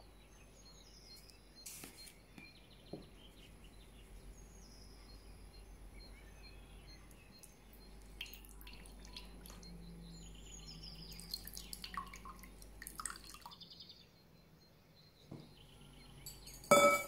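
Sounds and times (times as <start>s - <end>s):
birds chirping faintly: 0.0s - 17.0s
juice pouring into glass: 11.2s - 13.6s.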